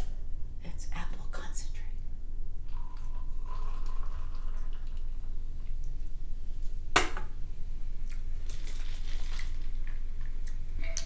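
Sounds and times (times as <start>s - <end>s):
low steady hum: 0.0s - 11.0s
juice trickling and dripping: 2.7s - 6.6s, 8.0s - 10.6s.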